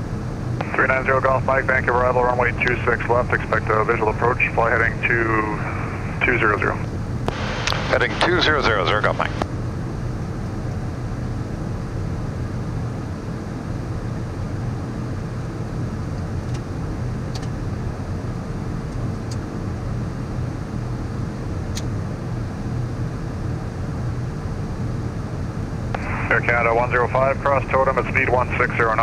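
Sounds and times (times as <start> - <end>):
jet cockpit rush: 0.6 - 9.4, 26.0 - 29.0.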